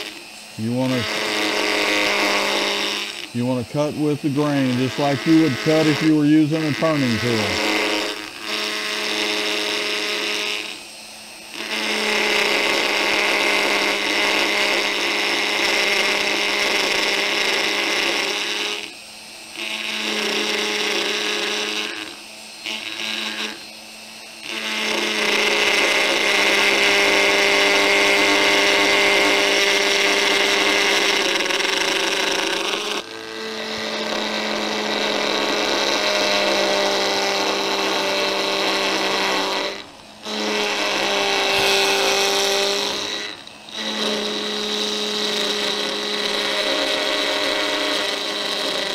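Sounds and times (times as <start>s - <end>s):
power carver buzzing into wood: 0.0s - 48.9s
quiet motor hum: 0.0s - 48.9s.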